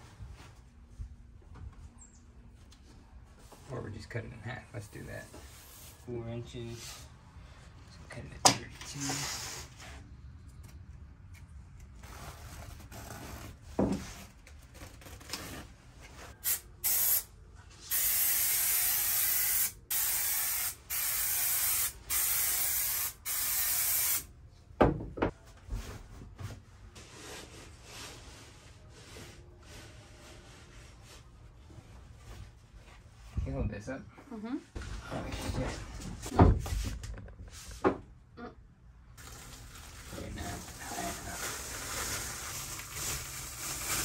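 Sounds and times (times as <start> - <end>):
aerosol spray can hissing: 16.4 - 17.3, 17.9 - 24.3.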